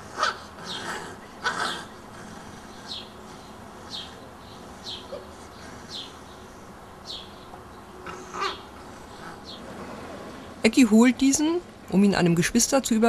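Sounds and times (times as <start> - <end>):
small bird chirping: 2.5 - 9.7.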